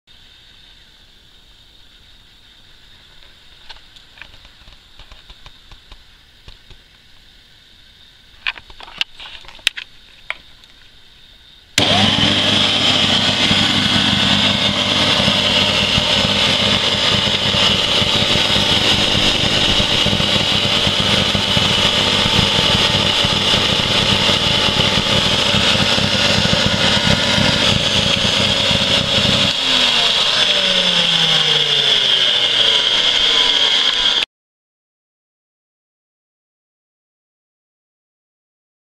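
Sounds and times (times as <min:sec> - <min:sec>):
vacuum cleaner motor whining: 0:11.8 - 0:34.3.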